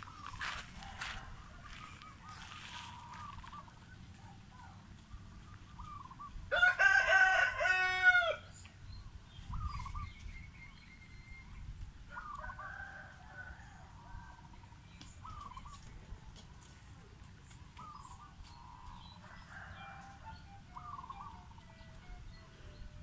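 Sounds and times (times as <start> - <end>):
rooster crowing: 0.4 - 2.0, 6.5 - 8.5, 19.2 - 21.2
faint bird chirps: 8.8 - 12.5, 15.0 - 16.0, 17.8 - 23.0.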